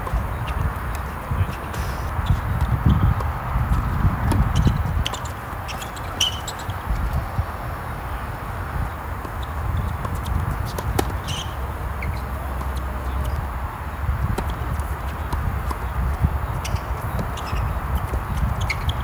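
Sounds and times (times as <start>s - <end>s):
steady low rumble: 0.0s - 5.6s
tennis balls hit and bouncing: 0.0s - 19.0s.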